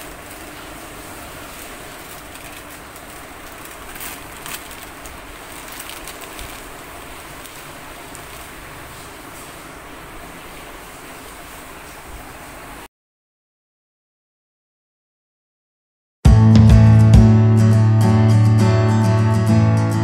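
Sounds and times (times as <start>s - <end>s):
plastic bag crinkling: 0.0s - 9.6s
steady background hiss: 0.0s - 12.9s.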